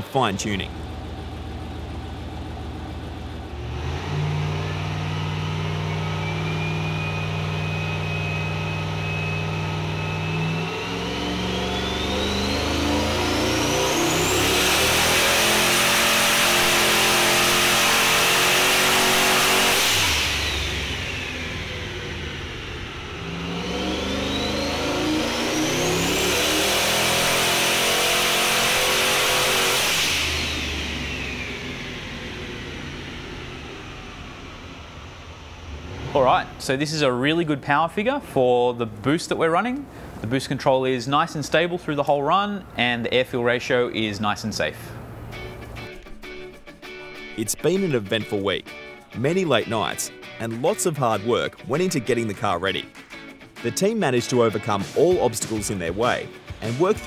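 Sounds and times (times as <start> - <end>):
race car engine revving: 0.0 - 37.6
turbo whine: 0.6 - 36.7.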